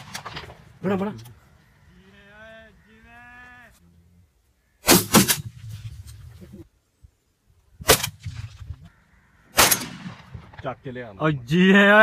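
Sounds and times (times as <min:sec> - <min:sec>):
gunshots: 0:00.0 - 0:01.1, 0:04.8 - 0:05.7, 0:09.5 - 0:10.8.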